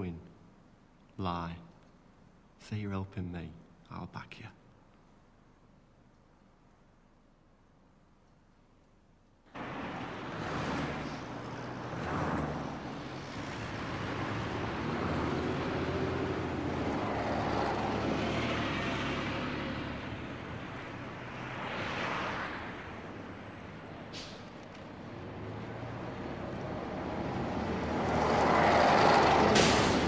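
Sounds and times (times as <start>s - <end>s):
vehicles passing: 9.5s - 30.0s.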